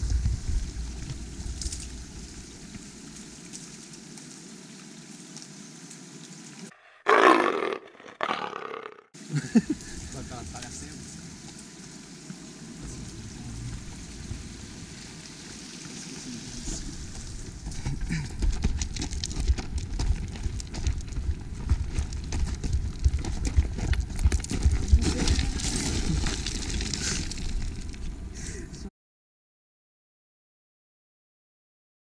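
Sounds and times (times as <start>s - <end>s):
running footsteps on gravel: 17.1s - 28.1s.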